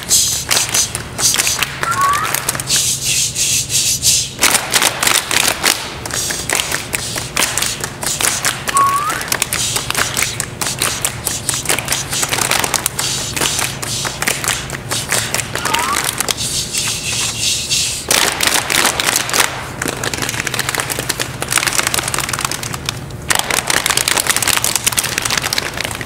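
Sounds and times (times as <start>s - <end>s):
hands doing body percussion: 0.0s - 26.0s
short rising whistle: 1.8s - 2.4s, 8.7s - 9.3s, 15.6s - 16.1s.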